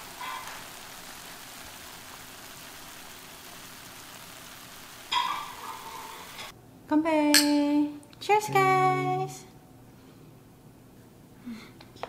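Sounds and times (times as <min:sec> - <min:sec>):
food sizzling in a skillet: 0:00.0 - 0:06.5.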